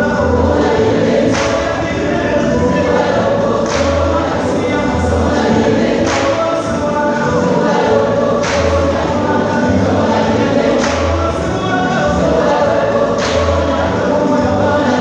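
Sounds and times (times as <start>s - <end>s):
choir singing gospel: 0.0s - 15.0s.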